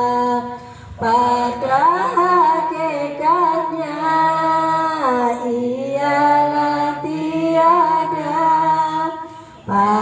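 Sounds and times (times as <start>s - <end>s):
woman singing into microphone: 0.0s - 10.0s
singer breathing in: 0.6s - 1.0s, 9.2s - 9.7s.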